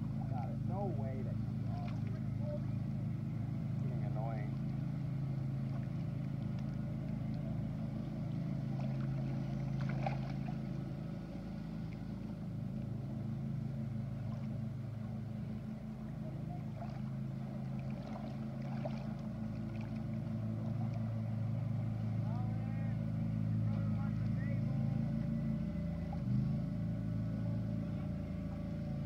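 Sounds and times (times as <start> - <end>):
motorboat engine droning: 0.0 - 29.0.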